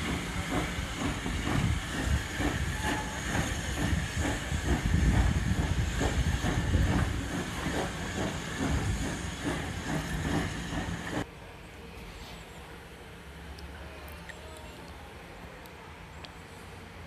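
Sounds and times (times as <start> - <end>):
steam hissing: 0.0 - 11.3
train wheels clattering: 0.0 - 11.3.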